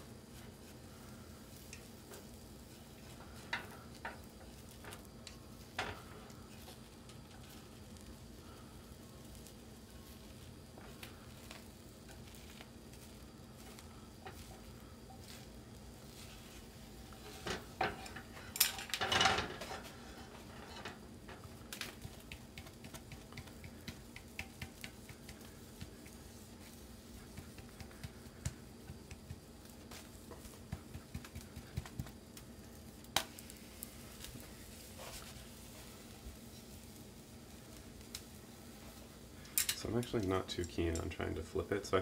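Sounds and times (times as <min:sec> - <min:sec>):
chopsticks clattering in frying pan: 0:17.2 - 0:19.9, 0:39.5 - 0:39.9.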